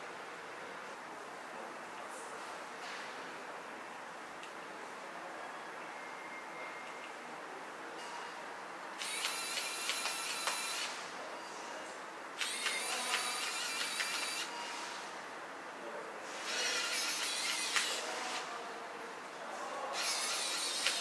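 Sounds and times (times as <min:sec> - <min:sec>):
electric screwdriver whining: 0:09.0 - 0:10.9, 0:12.4 - 0:14.5, 0:16.5 - 0:18.0, 0:20.0 - 0:21.0.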